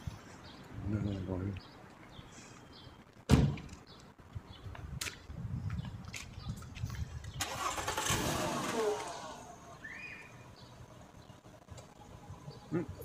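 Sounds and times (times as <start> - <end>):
traffic rumble: 0.0 - 13.0
car approaching: 7.4 - 12.2.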